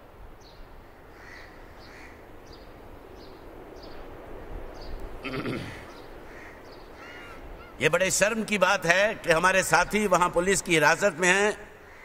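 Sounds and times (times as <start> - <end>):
outdoor hiss: 0.0 - 12.0
animal bleat: 5.2 - 5.8.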